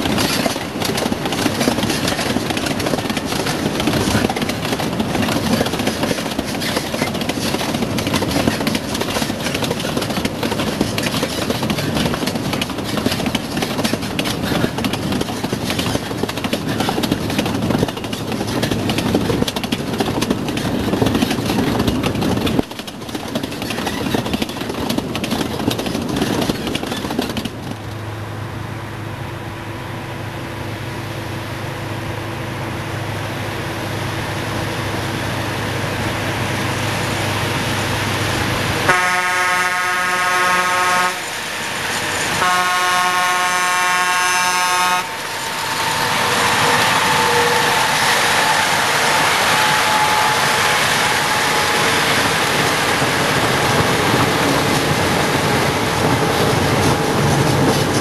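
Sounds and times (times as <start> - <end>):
wagon wheels clattering over rail joints: 0.0 - 28.0, 45.2 - 58.0.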